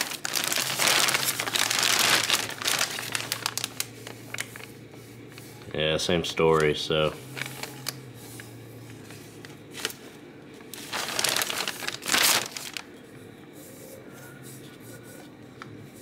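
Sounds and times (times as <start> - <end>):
plastic sheet crinkling: 0.0 - 4.8, 6.5 - 13.0.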